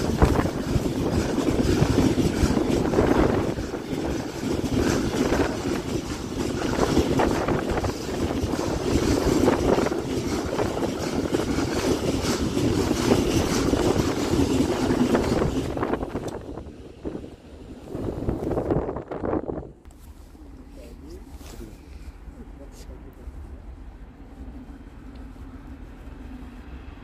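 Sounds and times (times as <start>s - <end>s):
wheels and wagons knocking: 0.0s - 16.6s
steel wheels rumbling on rails: 0.0s - 27.0s.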